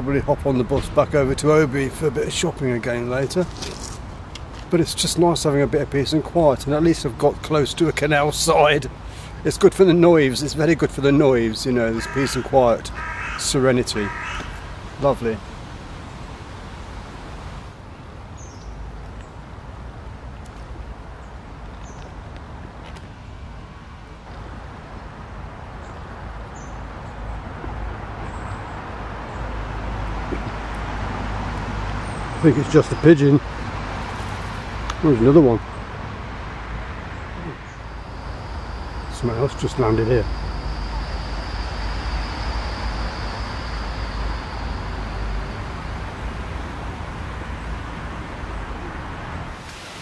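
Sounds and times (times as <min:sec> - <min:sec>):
road traffic hum: 0:00.0 - 0:50.0
thin high whine: 0:09.8 - 0:17.8, 0:36.8 - 0:50.0.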